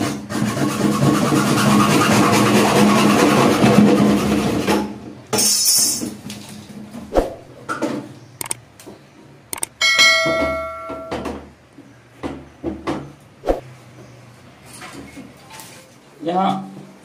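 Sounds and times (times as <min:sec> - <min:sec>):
hacksaw sawing plastic pipe: 0:00.0 - 0:04.8.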